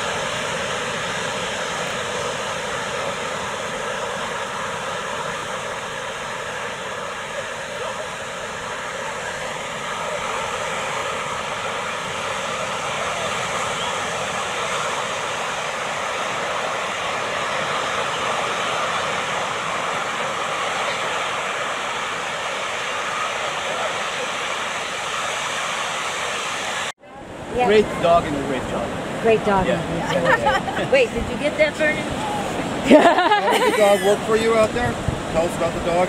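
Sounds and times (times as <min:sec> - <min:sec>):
ocean surf breaking: 0:00.0 - 0:36.0.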